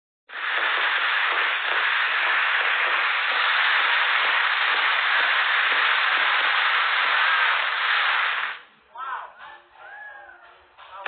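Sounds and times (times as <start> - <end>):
fireworks fountain hissing: 0.3 - 8.7.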